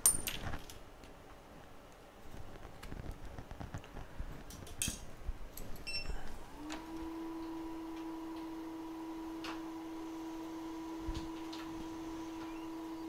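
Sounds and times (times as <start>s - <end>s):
small tools clicking and tapping: 2.7s - 5.9s.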